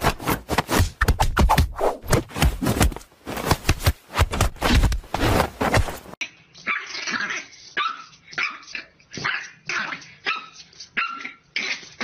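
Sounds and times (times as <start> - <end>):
puppy barking high-pitched: 6.6 - 12.0.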